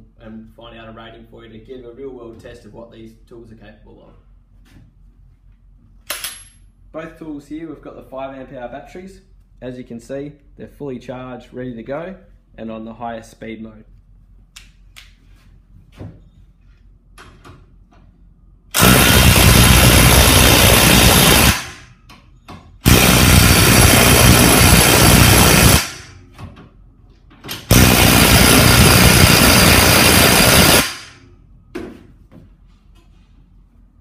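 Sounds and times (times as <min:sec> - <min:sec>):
impact wrench hammering nuts: 0:18.7 - 0:21.9, 0:22.6 - 0:26.1, 0:27.7 - 0:31.1.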